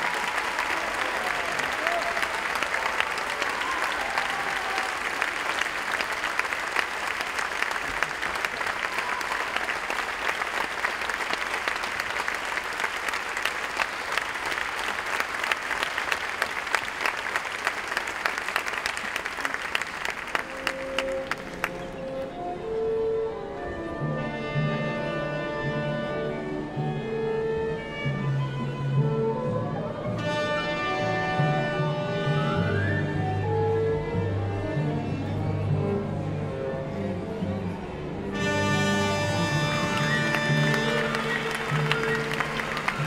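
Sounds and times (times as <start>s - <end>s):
audience applauding: 0.0s - 22.2s, 38.4s - 43.0s
orchestral music: 20.2s - 43.0s.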